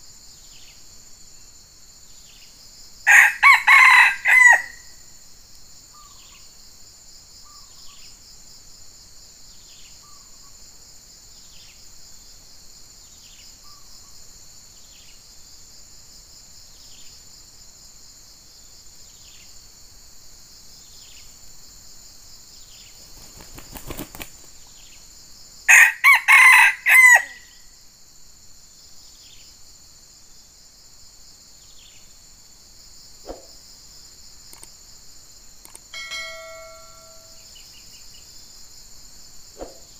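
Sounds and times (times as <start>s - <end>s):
insects droning: 0.0s - 39.9s
rooster crowing: 3.1s - 5.0s, 25.7s - 27.6s, 36.0s - 37.5s.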